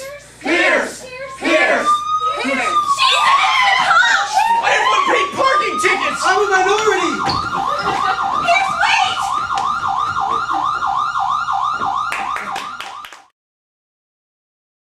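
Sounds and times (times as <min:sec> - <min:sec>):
siren yelping: 0:01.2 - 0:13.3.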